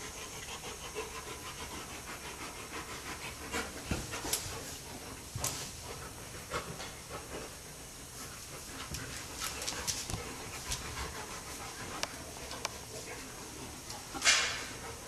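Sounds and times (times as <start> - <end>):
bears panting heavily: 0.0 - 15.0
animals scuffling: 3.7 - 15.0.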